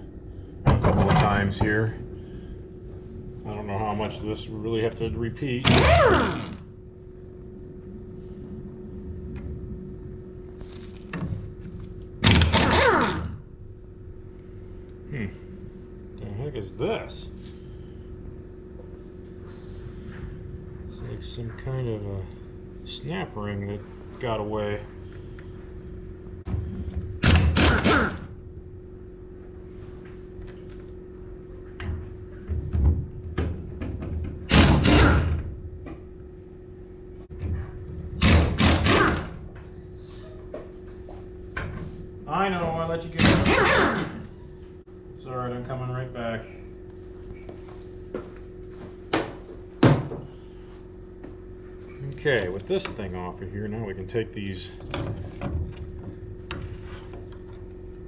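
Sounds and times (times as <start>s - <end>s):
steady low hum: 0.0s - 58.0s
metal knocks and clanks: 0.6s - 1.8s
pneumatic impact wrench: 5.6s - 6.7s, 12.2s - 13.4s, 27.2s - 28.3s, 34.5s - 35.4s, 38.2s - 39.4s, 43.2s - 44.3s.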